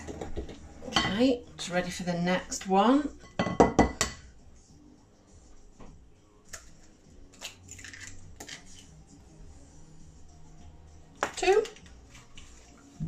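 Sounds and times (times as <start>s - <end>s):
eggshell cracking: 6.5s - 8.8s.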